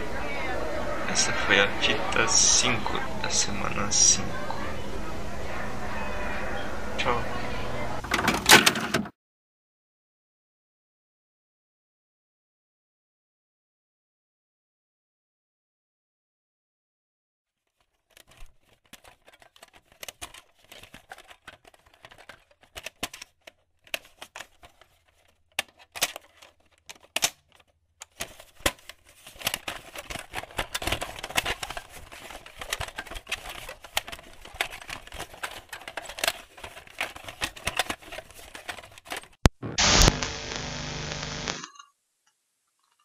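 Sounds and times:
crackles and clicks: 18.0 - 43.0
harsh static burst: 39.5 - 41.6.

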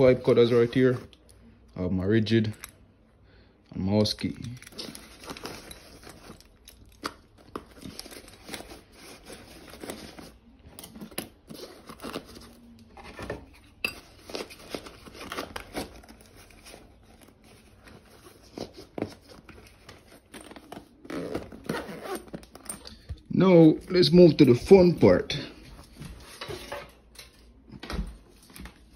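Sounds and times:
fabric bag rustling: 14.2 - 23.1.

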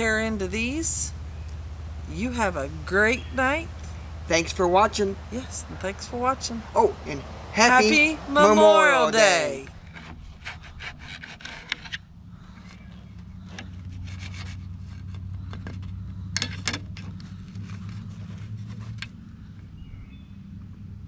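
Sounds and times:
low hum: 0.0 - 10.8.

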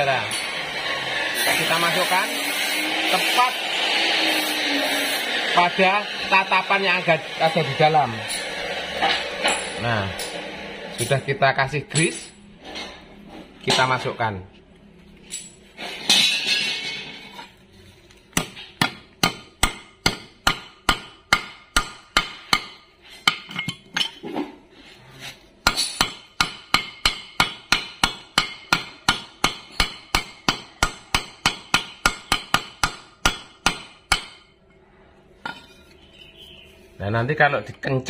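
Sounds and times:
hammer tapping on metal: 18.3 - 23.8, 25.6 - 34.5.

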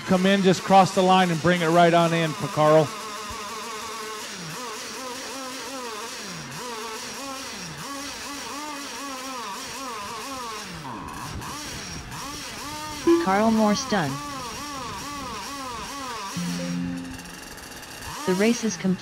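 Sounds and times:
model boat engines buzzing: 0.1 - 13.0, 13.7 - 19.0.

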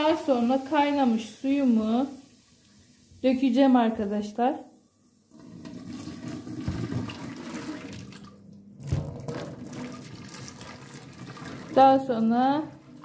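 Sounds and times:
water pouring into a steel sink: 5.2 - 13.0.

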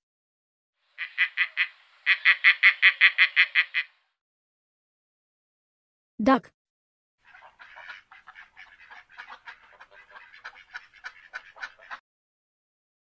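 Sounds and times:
duck quacking: 1.0 - 4.0, 7.2 - 12.0.

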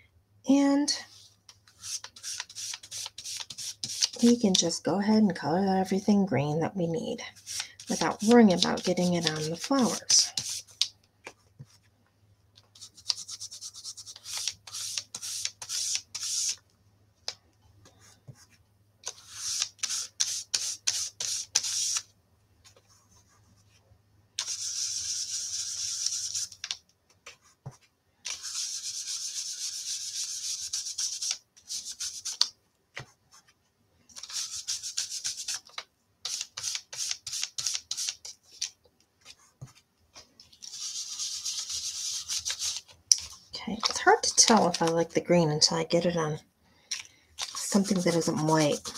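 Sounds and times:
brush rubbing on cardstock: 1.1 - 4.3, 7.3 - 10.8, 12.7 - 16.6, 19.1 - 22.0, 24.4 - 26.6, 27.3 - 32.5, 34.2 - 38.5, 40.6 - 44.9, 47.4 - 48.9.

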